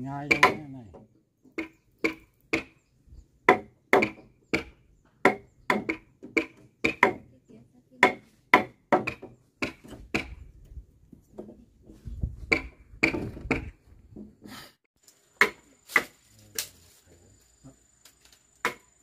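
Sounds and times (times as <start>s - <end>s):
blade chopping wood: 15.4s - 16.2s, 18.6s - 19.0s.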